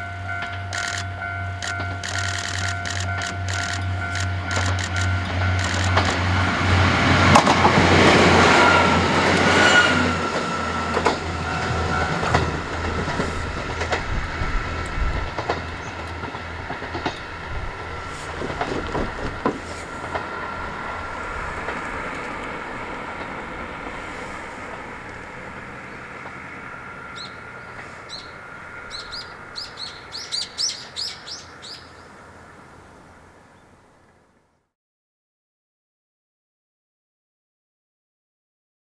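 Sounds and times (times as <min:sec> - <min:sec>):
diesel engine drone: 0:00.0 - 0:31.6
wheel-on-rail noise: 0:00.1 - 0:34.3
wheel clicks over rail joints: 0:00.4 - 0:06.2.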